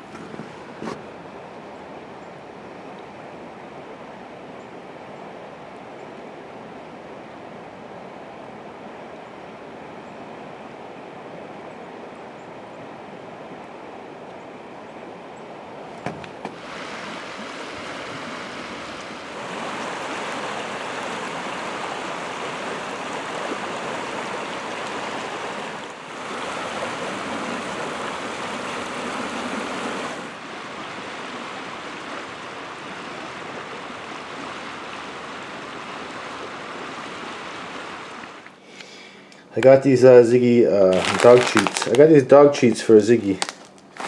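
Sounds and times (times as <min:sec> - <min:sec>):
river water rushing: 0:12.8 - 0:39.3, 0:40.8 - 0:42.2.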